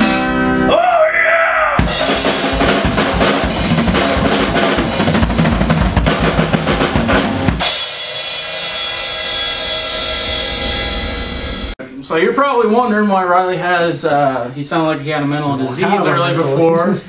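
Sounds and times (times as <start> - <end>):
drum kit played hard: 1.6 - 11.8
cymbal crash ringing: 1.8 - 11.8.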